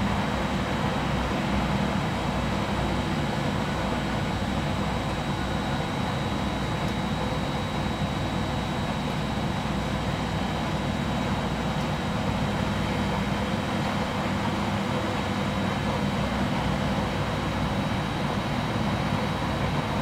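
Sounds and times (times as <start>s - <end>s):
washing machine running: 0.0s - 20.0s.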